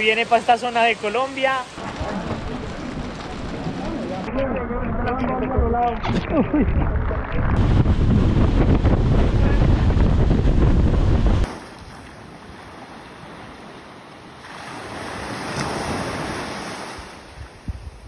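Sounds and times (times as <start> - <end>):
sea waves on shore: 0.0 - 4.2, 11.2 - 18.0
wind buffeting microphone: 1.8 - 11.5, 15.7 - 18.0.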